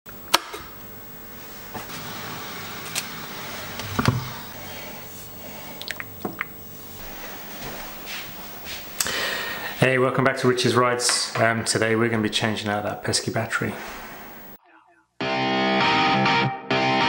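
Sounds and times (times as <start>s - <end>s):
liquid splashing into a ceramic mug: 5.8s - 6.5s.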